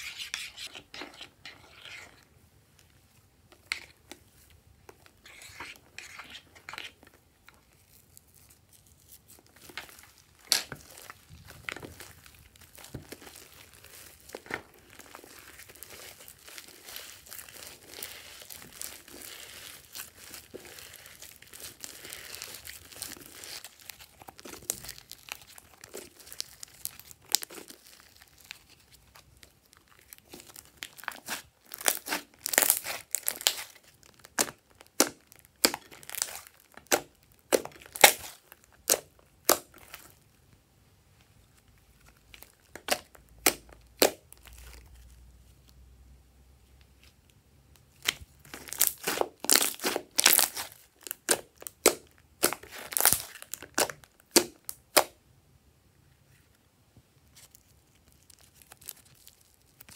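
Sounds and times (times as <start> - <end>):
slime squelching: 3.5 - 40.2, 47.9 - 55.2.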